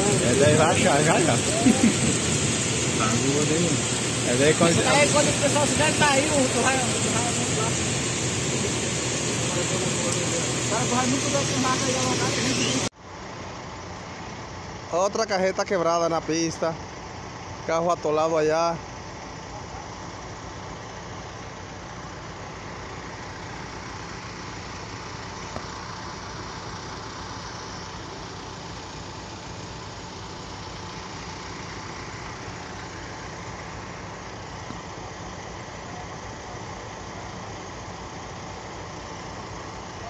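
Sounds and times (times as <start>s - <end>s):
constant even hiss: 0.0s - 40.0s
vehicle engines idling: 0.0s - 40.0s.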